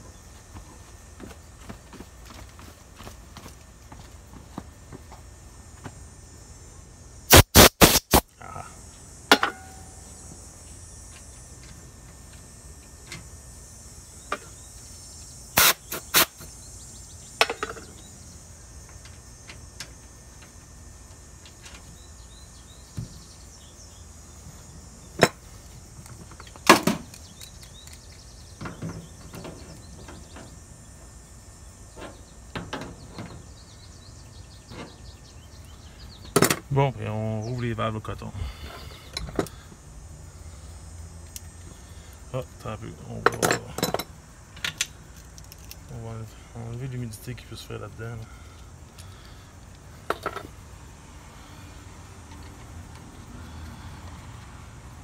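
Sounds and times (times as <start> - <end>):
steady high hiss: 0.0 - 55.0
compressed air puffs: 7.3 - 8.3, 15.6 - 16.4.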